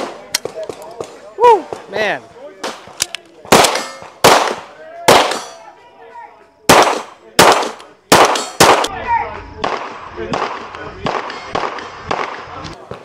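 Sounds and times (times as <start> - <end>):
gunshots: 2.6 - 5.6, 6.7 - 9.0, 9.6 - 13.0.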